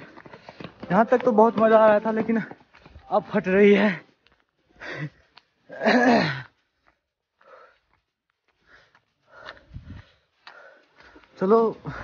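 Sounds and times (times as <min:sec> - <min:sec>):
faint breaths: 0:00.0 - 0:00.9, 0:03.8 - 0:05.6, 0:06.2 - 0:12.0.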